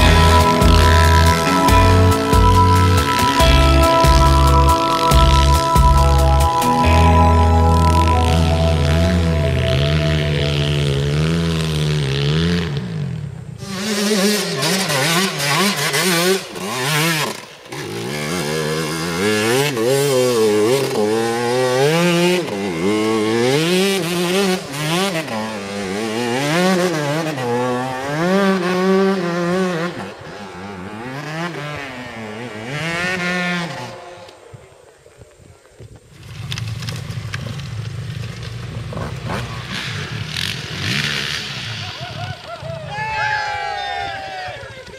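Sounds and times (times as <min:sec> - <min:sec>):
music: 0:00.0 - 0:11.4
dirt bike engines revving: 0:00.0 - 0:44.9
wheels spinning throwing dirt: 0:10.4 - 0:44.9.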